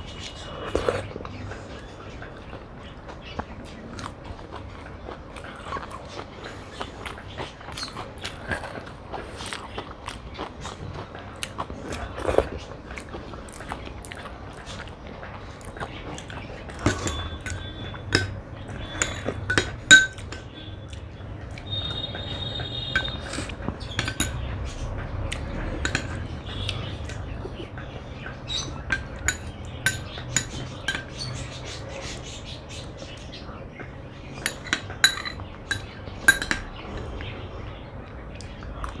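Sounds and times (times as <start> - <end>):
spoon scraping ceramic bowl: 16.8 - 20.4, 21.7 - 24.4.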